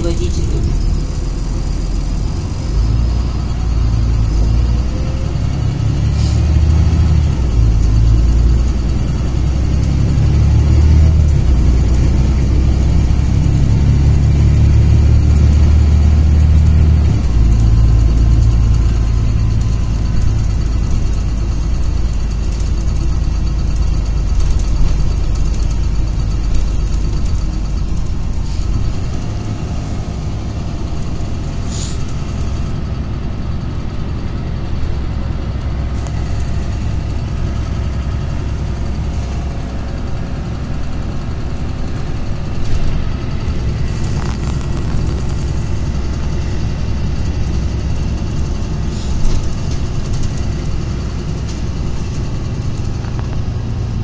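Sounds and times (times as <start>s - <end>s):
bus engine drone: 0.0s - 54.0s
road rumble: 0.0s - 54.0s.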